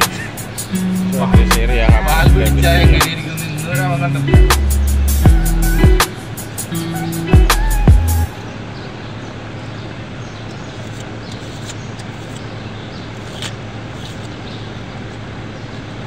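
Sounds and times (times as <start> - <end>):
steady low hum: 0.0 - 8.3
loud music with gliding tones: 0.0 - 8.4.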